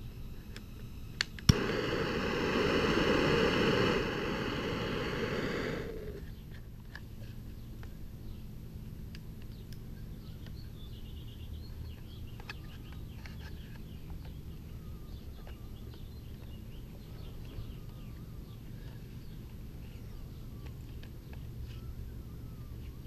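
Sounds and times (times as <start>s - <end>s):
low background rumble: 0.0s - 6.8s
small birds chirping: 1.5s - 8.6s, 9.2s - 23.0s.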